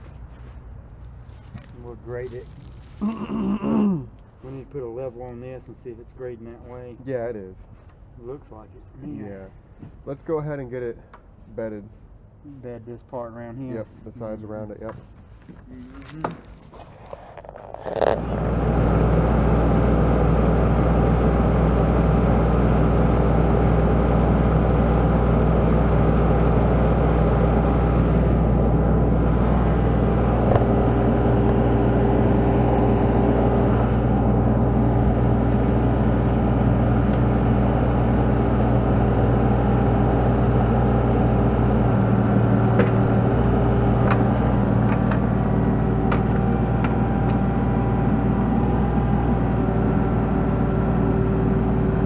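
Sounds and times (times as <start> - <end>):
diesel engine idling: 17.8 - 52.0.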